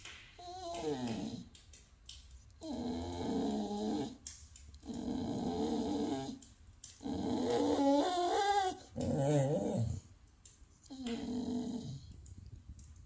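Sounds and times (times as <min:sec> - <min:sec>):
dog grumbling vocal sounds: 0:00.4 - 0:01.6, 0:02.6 - 0:10.1, 0:10.9 - 0:12.2.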